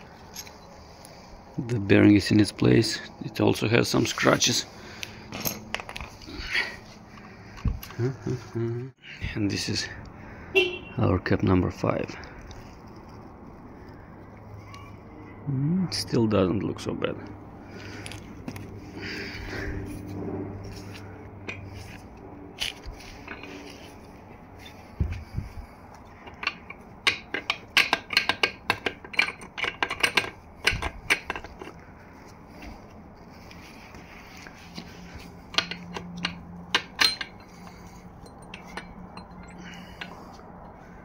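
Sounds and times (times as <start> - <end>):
engine parts clinking: 0.0 - 1.2, 1.9 - 8.2, 20.6 - 41.0.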